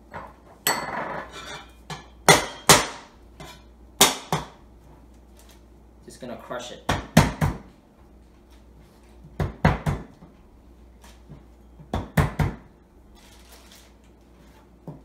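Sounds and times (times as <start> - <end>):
plastic bag rustling: 13.2 - 14.6.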